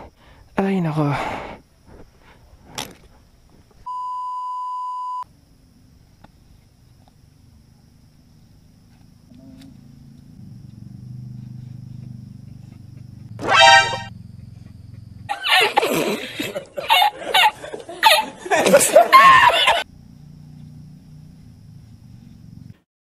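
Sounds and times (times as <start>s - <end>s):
faint outdoor background: 0.0s - 22.9s
censor bleep tone: 3.9s - 5.2s
low hum: 5.3s - 16.0s.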